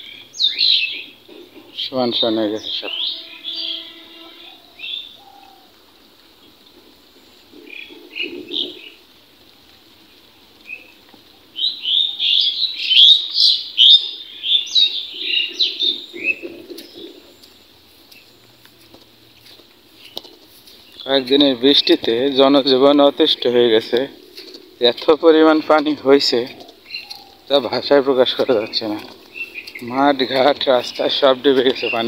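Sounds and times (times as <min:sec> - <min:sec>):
birds chirping: 0:00.0 - 0:09.1, 0:10.0 - 0:32.0.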